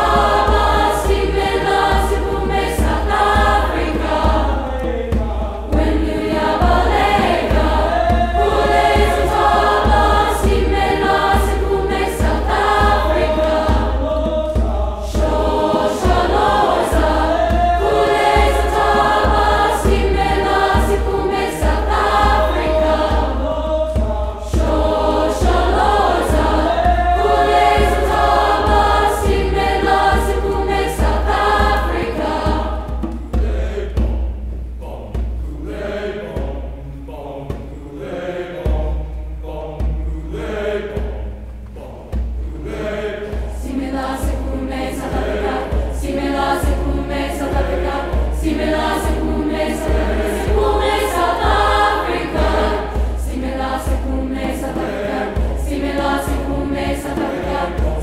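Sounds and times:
low pulsing beat: 0.0s - 36.8s, 38.7s - 58.0s
choir singing in parts: 0.0s - 58.0s.

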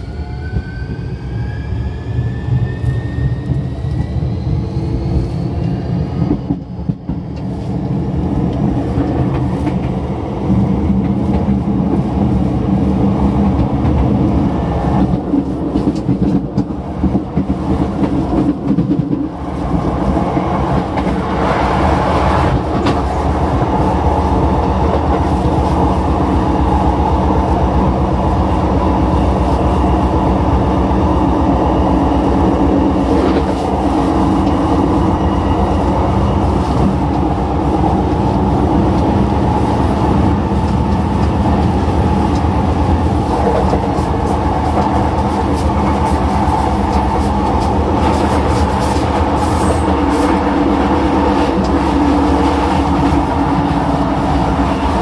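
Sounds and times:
train wheels rumbling: 0.0s - 55.0s
clickety-clack of rail joints: 5.6s - 10.0s, 10.9s - 12.5s, 13.3s - 23.8s, 33.0s - 38.2s, 38.8s - 55.0s.

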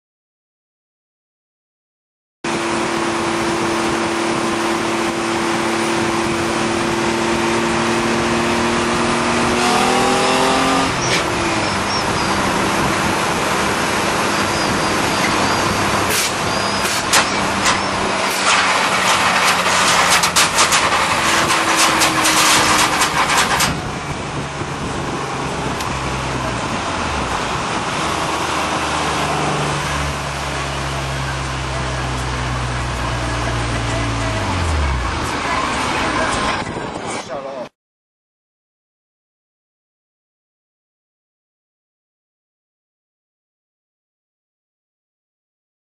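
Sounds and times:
truck engine revving: 2.5s - 36.9s
truck body scraping on pavement: 14.2s - 23.9s.

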